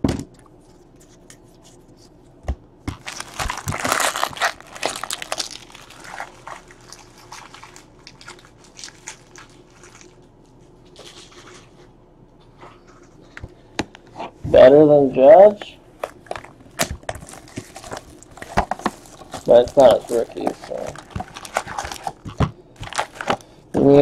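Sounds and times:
card wrappers crinkling: 0:02.9 - 0:10.3, 0:16.0 - 0:23.6
cards clicking and ticking: 0:16.0 - 0:23.5.

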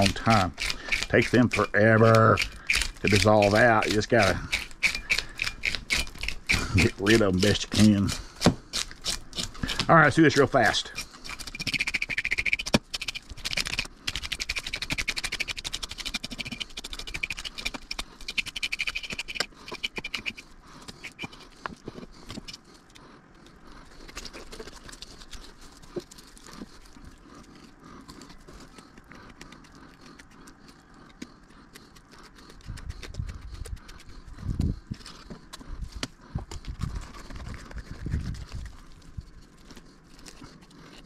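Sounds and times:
fillet knife scratching: 0:00.0 - 0:22.8
fish scaler rasping scrape: 0:00.0 - 0:22.8.

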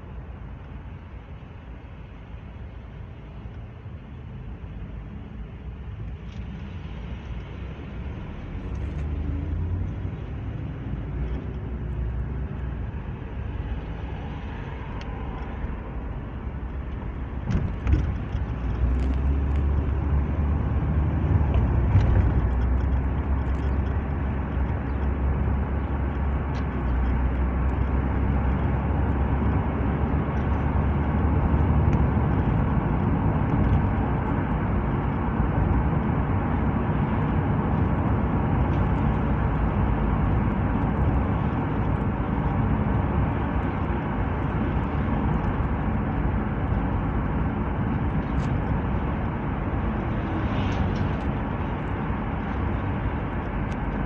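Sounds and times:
car engine drone: 0:00.0 - 0:54.0
low hum: 0:00.0 - 0:54.0
tyre and road noise: 0:00.0 - 0:54.0.

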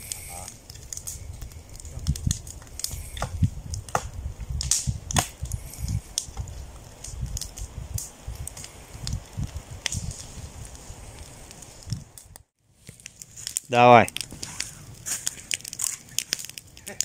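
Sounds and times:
campfire crackling and popping: 0:00.0 - 0:17.0
stick poking burning wood: 0:00.0 - 0:17.0.

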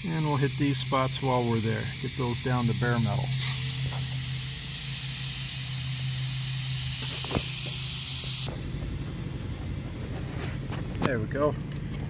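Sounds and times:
angle grinder grinding metal: 0:00.0 - 0:08.5.

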